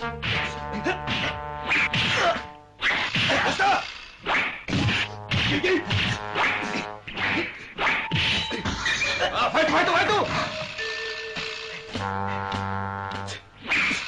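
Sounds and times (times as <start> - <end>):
cartoon punches and kicks whacking: 0.2 - 8.8.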